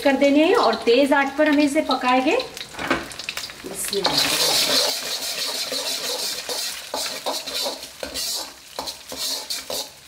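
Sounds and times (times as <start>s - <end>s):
eggs sizzling in hot oil: 0.0s - 10.0s
ladle scraping a wok: 4.0s - 10.0s.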